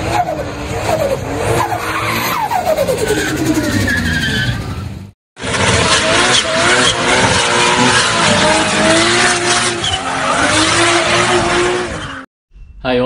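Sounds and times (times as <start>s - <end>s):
car engine revving: 5.4s - 12.3s.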